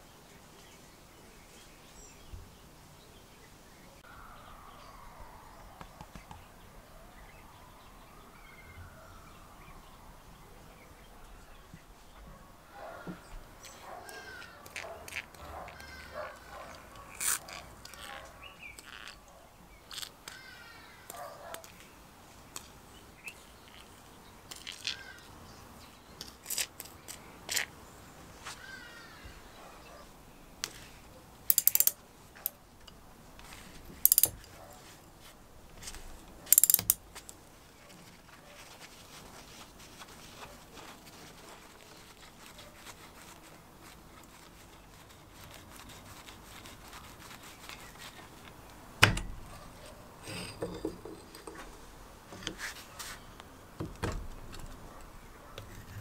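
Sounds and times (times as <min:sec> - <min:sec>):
metallic clicks and clanks: 0:31.5 - 0:32.6, 0:34.0 - 0:34.5, 0:36.5 - 0:37.0.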